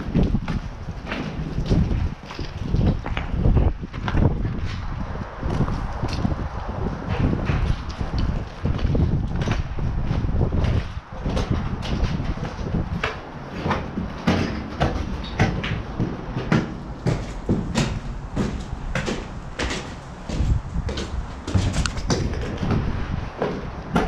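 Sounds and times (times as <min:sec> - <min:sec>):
footsteps scuffing on gritty stairs: 0:00.0 - 0:24.0.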